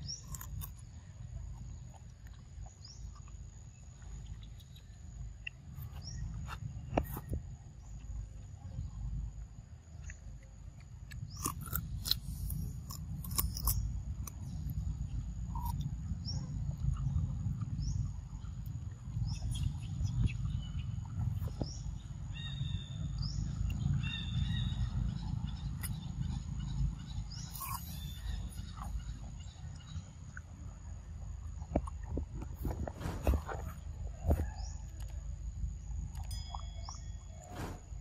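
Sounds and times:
monkey chewing fruit crunches: 0.0s - 8.2s, 10.0s - 14.8s, 27.4s - 29.1s
low rumble: 0.0s - 38.0s.

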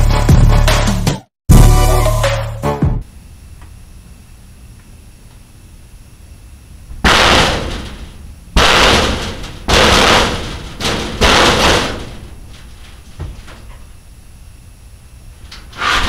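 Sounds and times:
loud bangs and slams: 6.9s - 14.0s.

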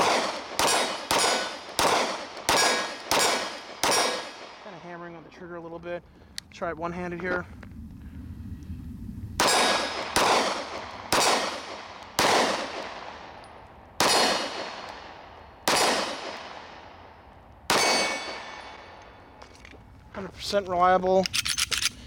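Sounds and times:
pistol shots: 0.0s - 4.8s, 9.4s - 19.3s
steel targets ringing: 17.7s - 19.3s.

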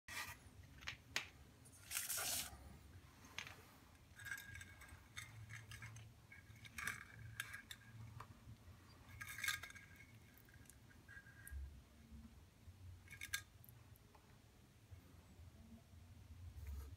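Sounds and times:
thread scratching on tile: 1.6s - 8.2s.

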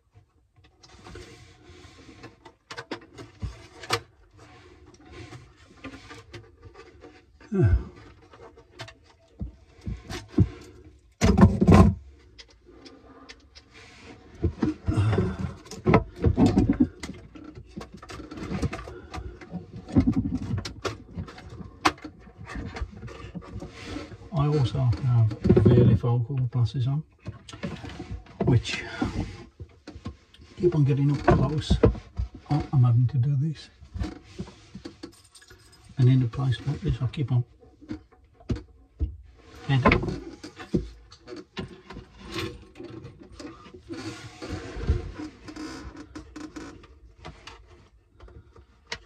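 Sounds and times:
small clicks knocks and rustles: 0.1s - 49.0s
bumps and rubs on plastic housing: 13.6s - 26.2s.

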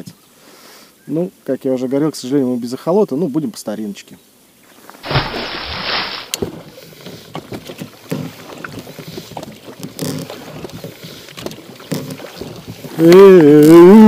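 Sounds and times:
oars creaking in oarlocks: 4.7s - 14.0s
water splashing: 4.9s - 14.0s.

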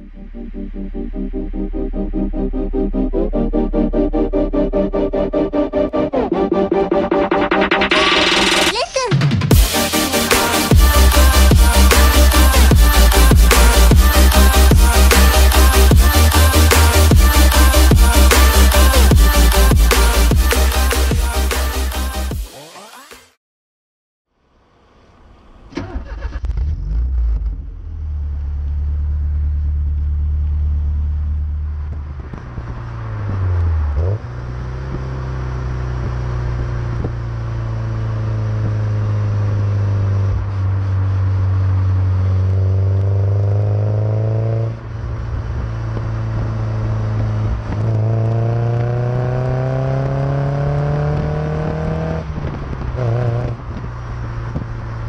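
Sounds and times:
car exhaust revving: 9.5s - 22.3s, 24.6s - 55.0s.

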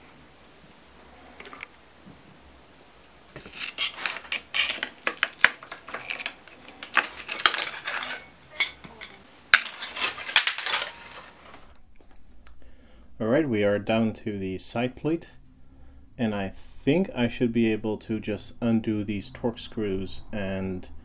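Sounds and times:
metal parts clinking and clattering: 3.3s - 11.4s.

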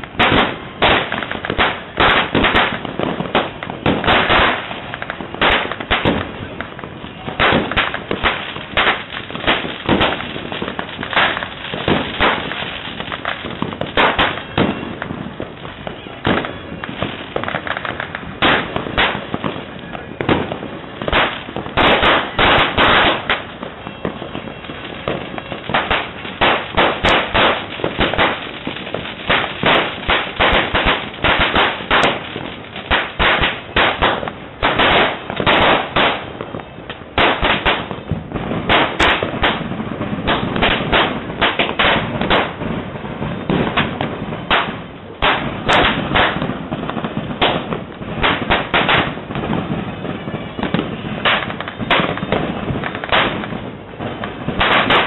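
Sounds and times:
firecrackers banging and crackling: 0.0s - 55.0s.

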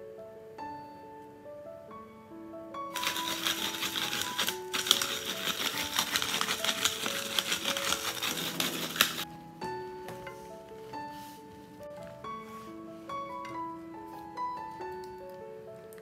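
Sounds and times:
soft piano music: 0.0s - 16.0s
pepper grinder grinding: 2.9s - 9.3s.

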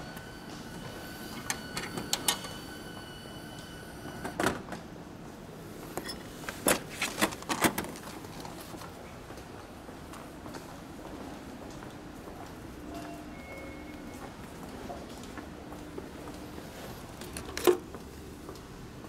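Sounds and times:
steady high tone: 0.0s - 4.3s.

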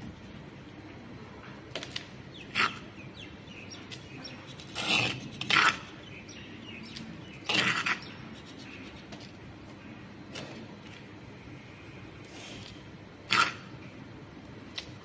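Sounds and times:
trowel scraping soil: 2.5s - 2.9s, 3.9s - 6.0s, 7.4s - 8.1s, 12.2s - 13.7s.

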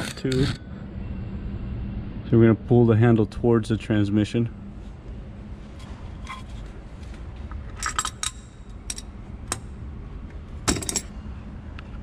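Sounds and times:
wrench clinking on metal: 7.7s - 9.6s, 10.7s - 11.1s.

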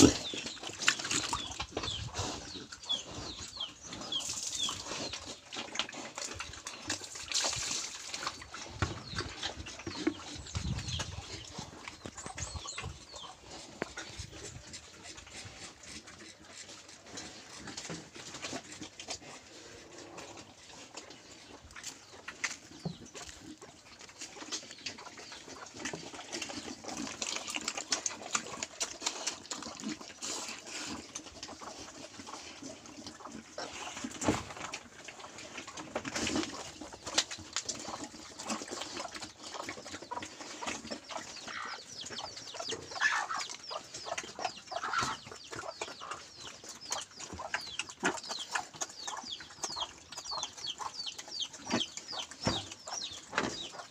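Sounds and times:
pigs chewing and snuffling: 0.0s - 53.9s
birds calling: 39.5s - 53.9s.

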